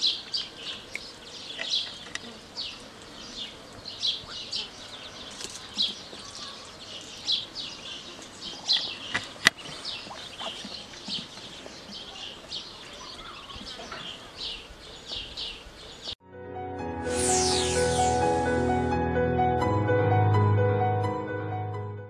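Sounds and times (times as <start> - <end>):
small birds chirping: 0.0 - 16.2
music: 16.2 - 22.0.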